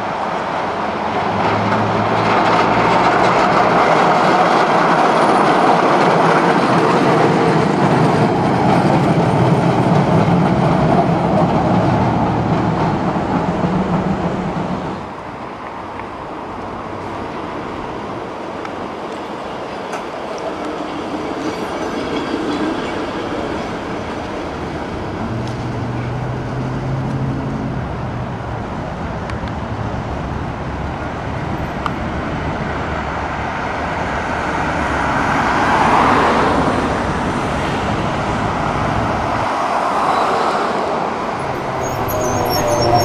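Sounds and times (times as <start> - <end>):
city traffic: 0.0 - 43.0
streetcar running on track: 0.0 - 43.0
vehicle passing: 41.3 - 43.0.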